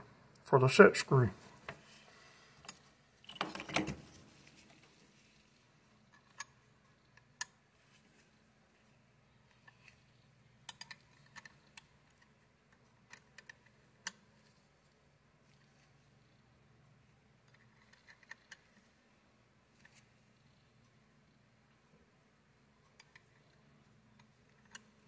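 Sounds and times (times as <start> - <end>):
small metallic clicks and clinks: 9.5 - 14.6.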